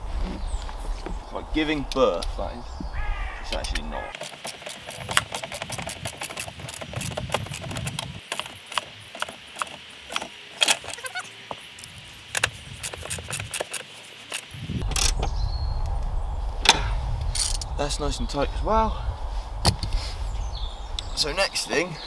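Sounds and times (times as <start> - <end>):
low rumble: 0.0 - 3.4, 14.6 - 22.0
hand tool clicking and knocking: 3.6 - 11.0.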